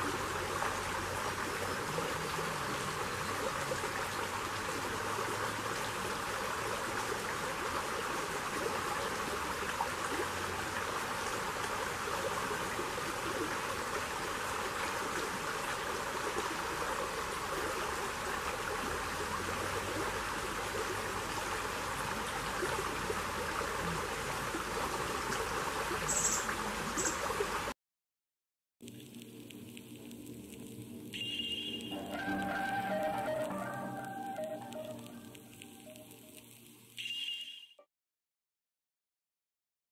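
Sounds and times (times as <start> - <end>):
stream flowing over rocks: 0.0 - 27.7, 31.9 - 36.1
brief high-pitched sounds: 31.9 - 36.4.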